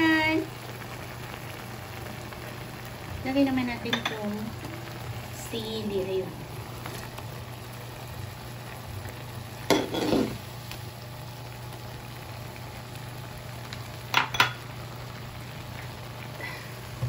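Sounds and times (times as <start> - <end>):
shrimp sizzling in a pan: 0.0 - 17.0
cookware clattering: 9.7 - 10.4, 14.2 - 14.6.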